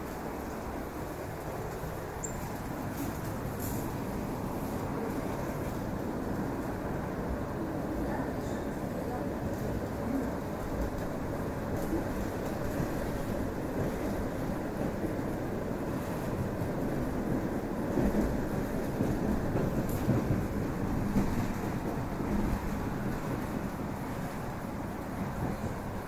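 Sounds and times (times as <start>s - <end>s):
train wheels rumbling on rails: 0.0s - 26.0s
train bumps: 15.9s - 26.0s.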